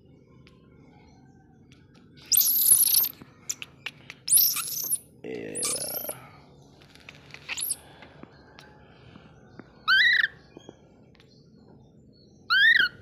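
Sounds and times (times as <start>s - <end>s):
baby monkey squealing: 2.3s - 3.6s, 4.3s - 5.0s, 5.6s - 6.2s, 7.4s - 7.8s, 9.9s - 10.4s, 12.5s - 13.0s.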